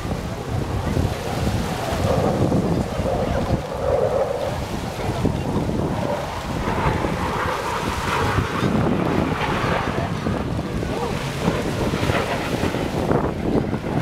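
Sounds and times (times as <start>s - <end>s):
sea water washing: 0.0s - 14.0s
wind buffeting the microphone: 0.0s - 14.0s.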